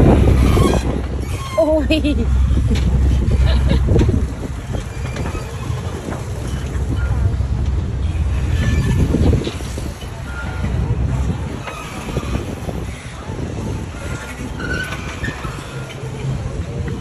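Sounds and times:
boat engine rumble: 0:00.0 - 0:17.0
people talking: 0:01.6 - 0:02.3.

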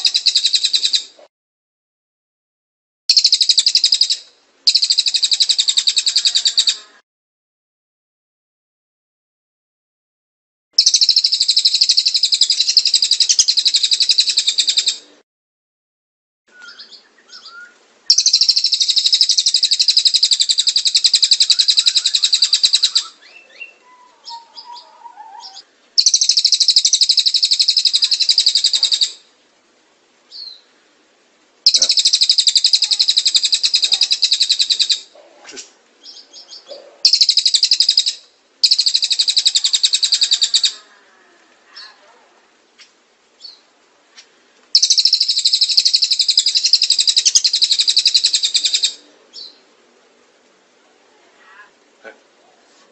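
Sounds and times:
bird trilling song: 0:00.0 - 0:01.2, 0:03.1 - 0:07.0, 0:10.8 - 0:15.0, 0:16.5 - 0:29.3, 0:30.3 - 0:30.7, 0:31.7 - 0:35.2, 0:36.0 - 0:40.9, 0:43.4 - 0:43.7, 0:44.7 - 0:49.6
soft bird chirps: 0:10.8 - 0:15.0, 0:16.5 - 0:29.3, 0:30.3 - 0:31.0, 0:31.6 - 0:40.9, 0:42.8 - 0:49.7.

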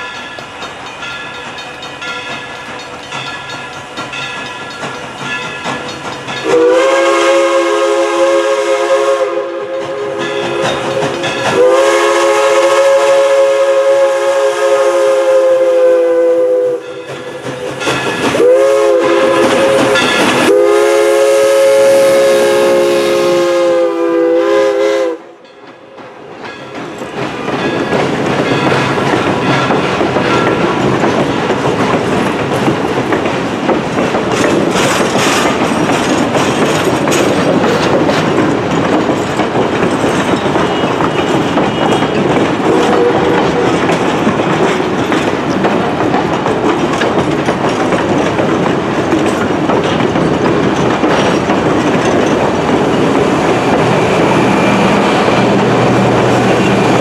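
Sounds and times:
steam locomotive chime whistle: 0:00.0 - 0:25.9, 0:40.4 - 0:43.9
train wheels clacking on rails: 0:00.0 - 0:57.0.

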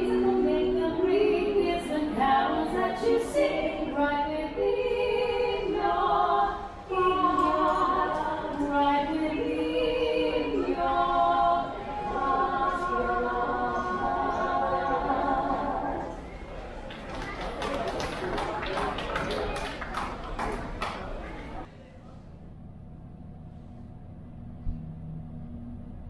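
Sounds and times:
choir singing unaccompanied: 0:00.0 - 0:16.6.

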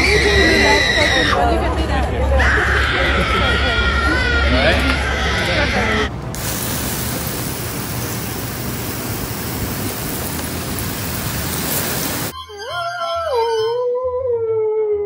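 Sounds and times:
water spraying hiss: 0:06.4 - 0:12.3.

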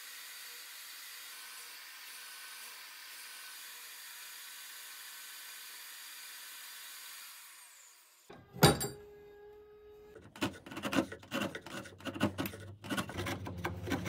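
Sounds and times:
saw blade winding down: 0:00.0 - 0:08.3
table saw cutting board: 0:10.3 - 0:14.0.

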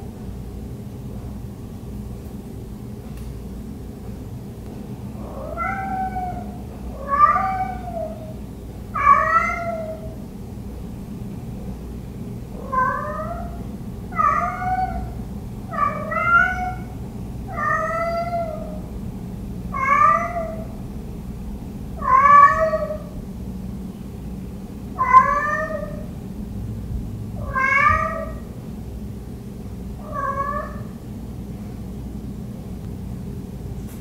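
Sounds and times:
cat meowing: 0:05.2 - 0:08.3, 0:09.0 - 0:10.2, 0:12.6 - 0:18.8, 0:19.7 - 0:20.7, 0:22.0 - 0:23.1, 0:25.0 - 0:26.1, 0:27.4 - 0:28.5, 0:30.0 - 0:30.9.

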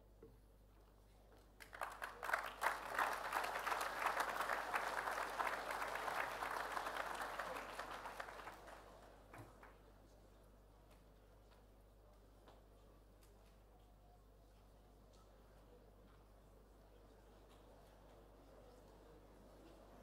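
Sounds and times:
audience applause: 0:01.6 - 0:09.1.

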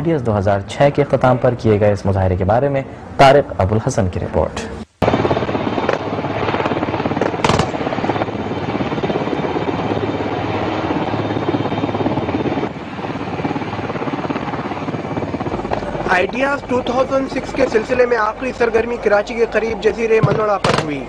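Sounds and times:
helicopter rotor chopping: 0:05.0 - 0:21.0.

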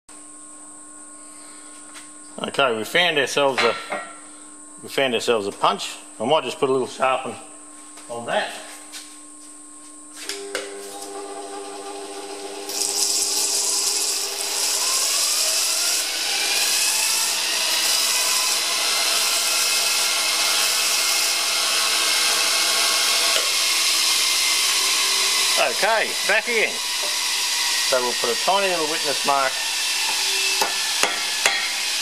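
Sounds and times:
electric grinder motor: 0:10.2 - 0:32.0
steel grinding hiss: 0:12.3 - 0:32.0.

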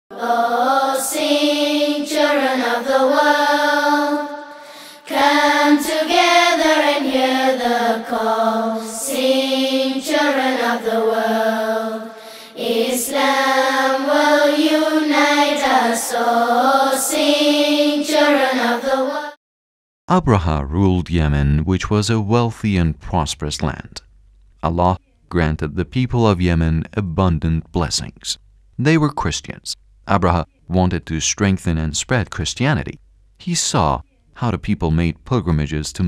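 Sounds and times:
person singing chant-like melody: 0:00.1 - 0:19.4.

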